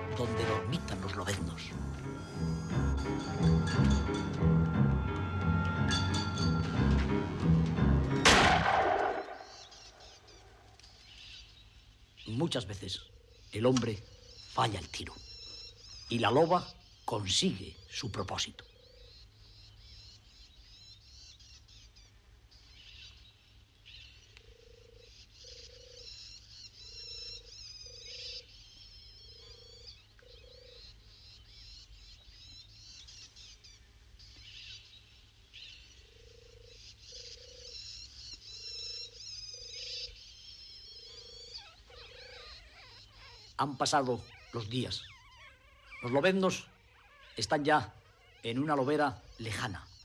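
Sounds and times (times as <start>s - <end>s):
high bird twittering: 8.2s - 23.2s, 25.0s - 50.0s.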